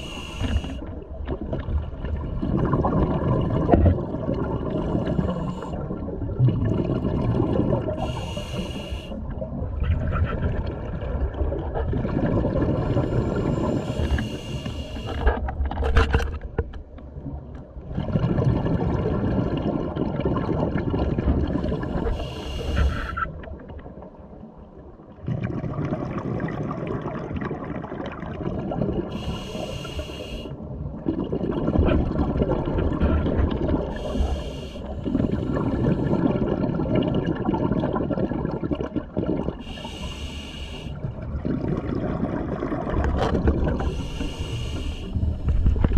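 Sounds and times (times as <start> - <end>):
regulator hissing inhale: 0.0 - 0.9, 4.8 - 5.8, 8.0 - 9.2, 13.1 - 15.2, 21.8 - 23.3, 29.1 - 30.6, 34.0 - 36.2, 39.6 - 41.0, 43.9 - 45.6
bubbling exhales: 2.2 - 9.1, 31.0 - 45.9.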